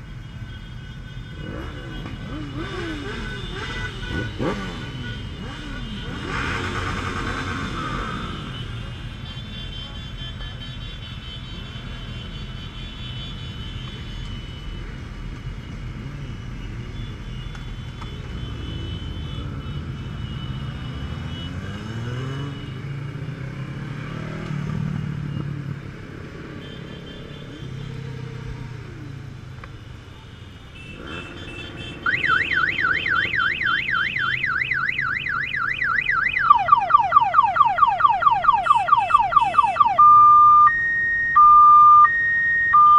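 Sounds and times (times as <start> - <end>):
motorcycle engines running: 1.3 - 9.2
warbling electronic siren: 31.1 - 42.9.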